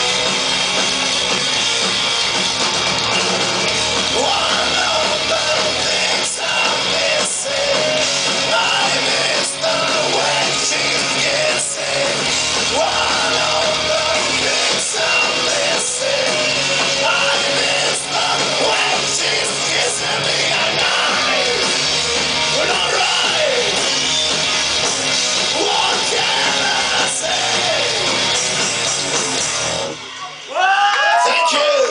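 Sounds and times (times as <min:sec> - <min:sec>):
live rock band playing: 0:00.0 - 0:30.6
crowd shouting: 0:02.8 - 0:28.4, 0:29.9 - 0:31.9
man singing into a microphone: 0:04.2 - 0:21.6, 0:22.6 - 0:23.7.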